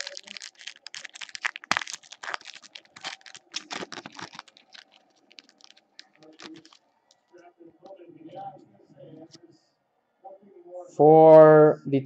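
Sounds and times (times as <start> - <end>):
foil wrapper crinkling: 0.0 - 7.2.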